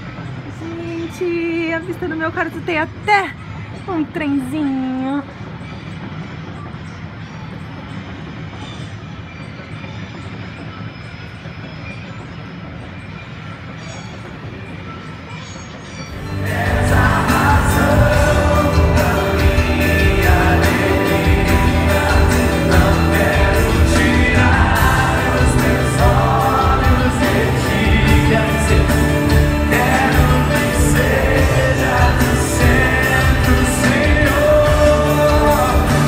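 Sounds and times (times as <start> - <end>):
singing: 15.4 - 36.0
guitars: 16.1 - 36.0
worship band playing: 16.1 - 36.0.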